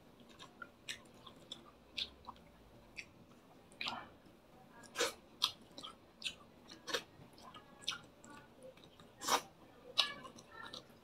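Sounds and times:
man chewing food: 0.0s - 11.0s
lip-smacking: 0.2s - 4.0s.

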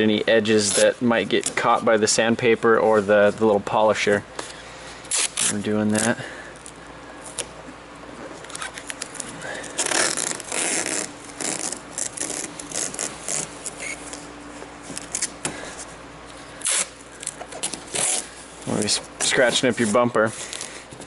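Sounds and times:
tape rubbing on car paint: 0.6s - 1.8s, 5.0s - 6.2s, 8.4s - 15.4s, 16.6s - 21.0s
masking tape ripping off roll: 5.1s - 6.2s, 8.4s - 14.2s, 15.0s - 15.4s, 16.6s - 18.4s.

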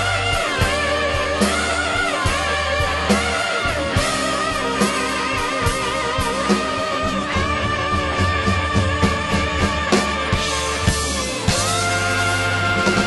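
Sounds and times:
bass: 0.0s - 13.0s
drum beat: 0.0s - 13.0s
electric guitar lead: 0.0s - 13.0s.

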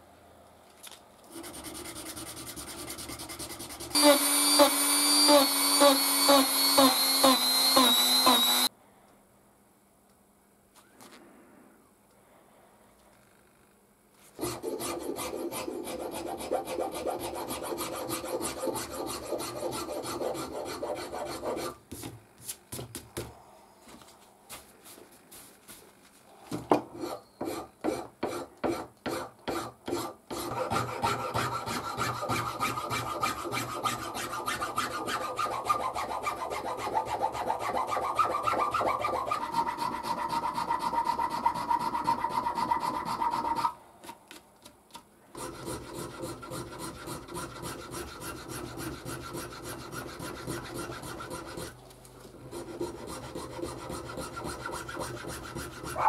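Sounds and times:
hand file scraping: 1.3s - 8.7s, 14.3s - 22.1s, 26.8s - 43.8s, 45.4s - 56.0s.

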